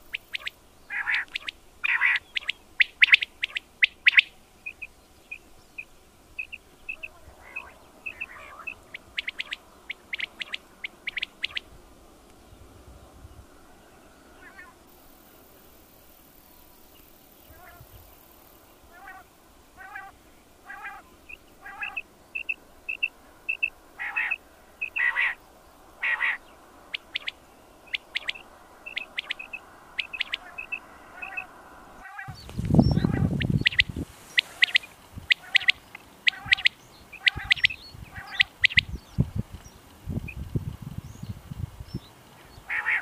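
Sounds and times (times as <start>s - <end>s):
quail calling: 0.0s - 4.9s, 6.4s - 11.7s, 14.3s - 14.8s, 17.5s - 17.9s, 18.9s - 25.4s, 26.0s - 39.0s, 42.4s - 43.0s.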